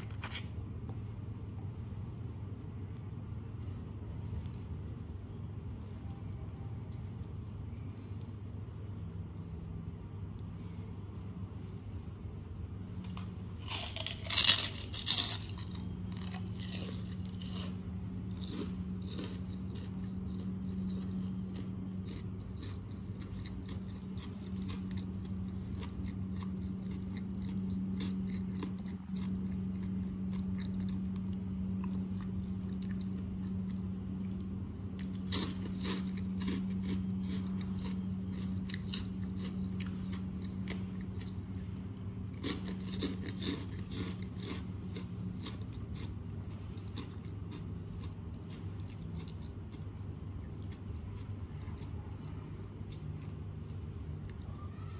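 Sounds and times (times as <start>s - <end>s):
cracker crunching: 0.0s - 11.2s, 12.2s - 54.9s
low hum: 0.0s - 54.9s.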